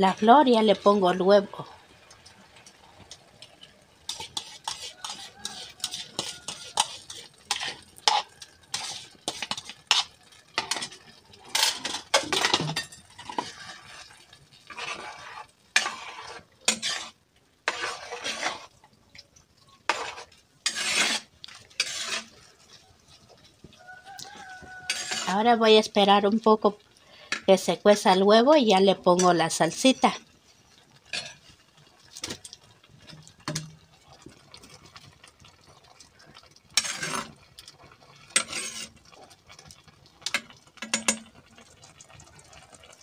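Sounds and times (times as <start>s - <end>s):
spoon scraping a pot: 4.1s - 18.8s, 19.7s - 25.6s, 31.1s - 31.6s, 36.7s - 37.4s, 38.2s - 39.3s, 40.3s - 41.4s.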